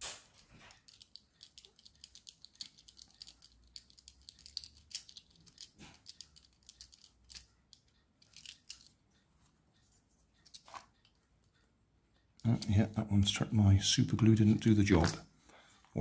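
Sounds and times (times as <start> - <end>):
screwdriver clicking and scraping: 0.3 - 8.9.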